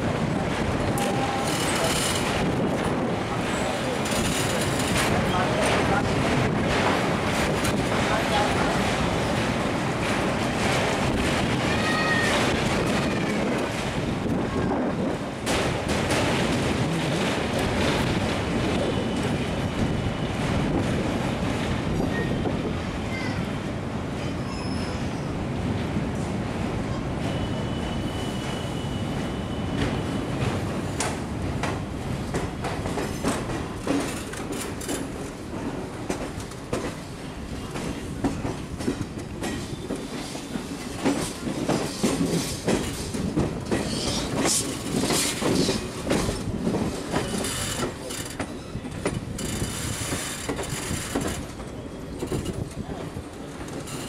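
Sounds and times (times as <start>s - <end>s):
train coach rumbling: 0.0s - 54.0s
wheels clattering over rail joints: 30.9s - 54.0s.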